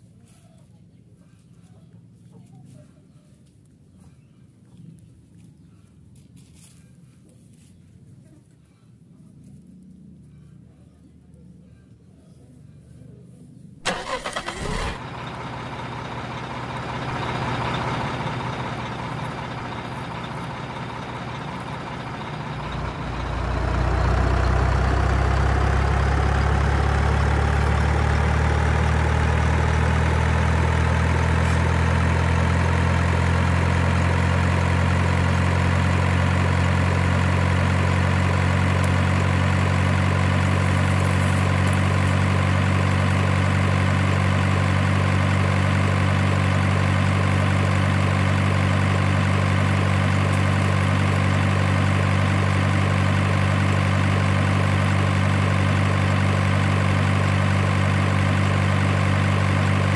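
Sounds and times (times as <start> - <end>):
diesel truck engine idling: 13.8 - 59.9.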